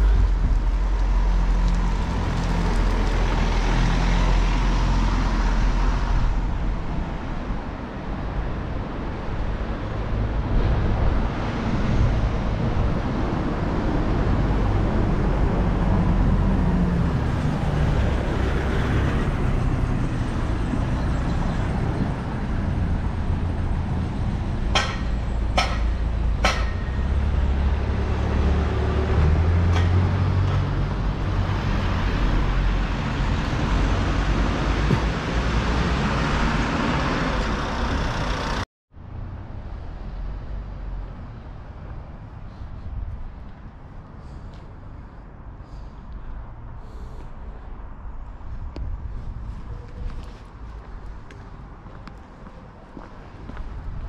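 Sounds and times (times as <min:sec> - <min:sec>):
vehicle engines rumbling past: 0:00.0 - 0:54.0.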